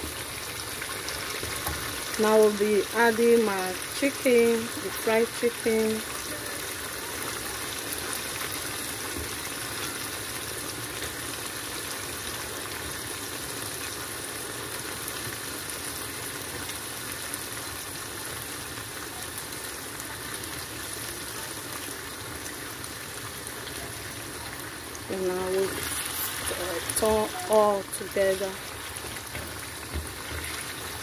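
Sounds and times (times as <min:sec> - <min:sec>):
sauce bubbling and sizzling: 0:00.0 - 0:31.0.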